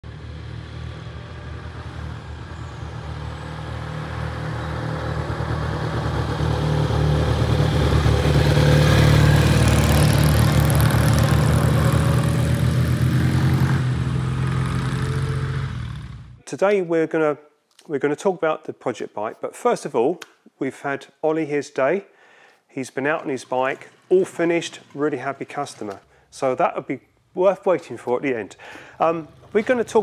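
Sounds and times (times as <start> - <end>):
motorcycle riding past: 0.0 - 16.4, 28.8 - 30.0.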